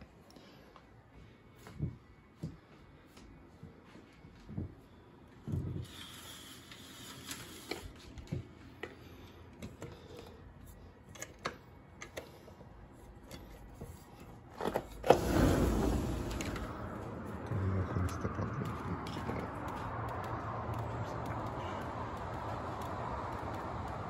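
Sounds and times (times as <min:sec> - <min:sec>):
sliding glass door opening: 0:15.0 - 0:17.4.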